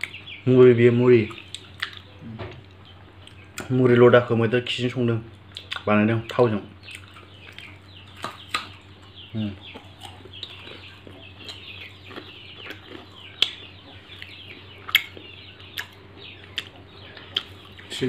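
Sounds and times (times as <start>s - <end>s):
faint bird chirping: 0.0s - 18.0s
person chewing close up: 1.3s - 2.1s, 5.5s - 5.9s, 6.9s - 9.1s, 9.7s - 17.9s.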